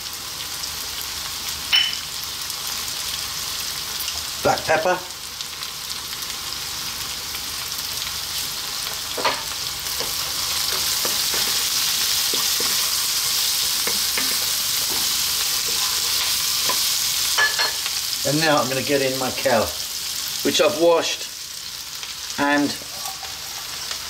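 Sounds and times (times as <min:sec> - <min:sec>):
vegetables sizzling in oil: 0:00.0 - 0:24.0
spatula scraping and tapping pan: 0:09.1 - 0:13.0, 0:13.7 - 0:17.8.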